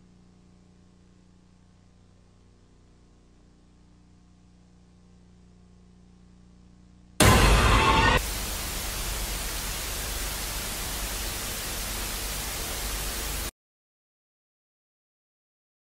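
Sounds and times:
white noise hiss: 0:00.0 - 0:13.5
harsh distorted burst: 0:07.2 - 0:13.5.

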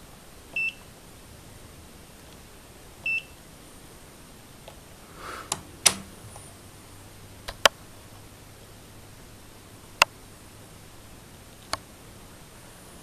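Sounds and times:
multimeter button clicks: 0:05.5 - 0:06.2.

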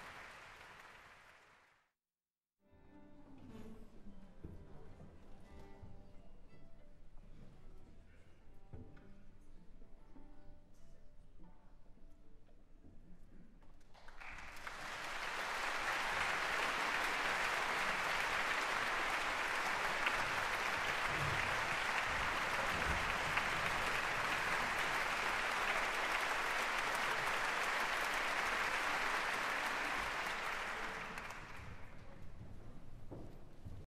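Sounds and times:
audience applauding: 0:00.0 - 0:01.9, 0:14.0 - 0:32.1.

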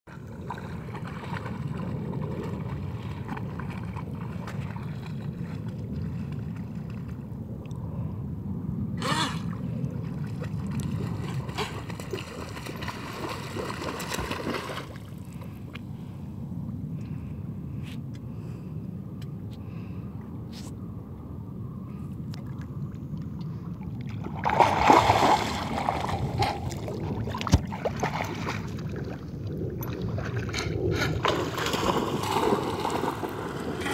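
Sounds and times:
water sloshing and splashing: 0:00.1 - 0:07.8, 0:09.5 - 0:15.8, 0:22.3 - 0:33.9.

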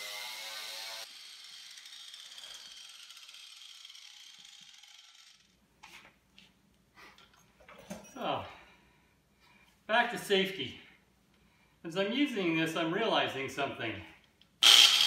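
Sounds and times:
angle grinder winding down: 0:00.0 - 0:05.5, 0:14.6 - 0:15.0.

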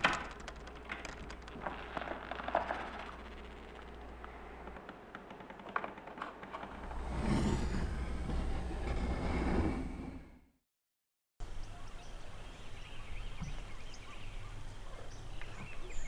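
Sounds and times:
low hum: 0:00.0 - 0:10.5
loud low rumbling: 0:06.6 - 0:10.5.

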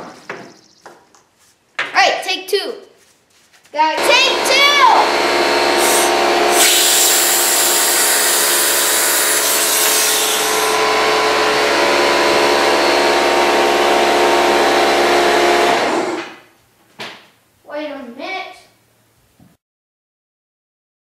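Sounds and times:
air compressor humming: 0:03.9 - 0:16.5
compressed air blast hissing: 0:05.6 - 0:11.5.

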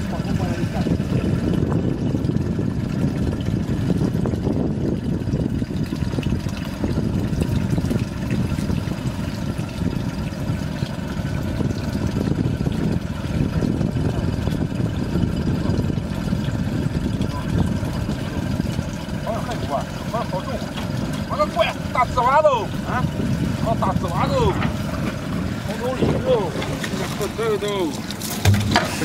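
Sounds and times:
boat engine running: 0:00.0 - 0:29.0.

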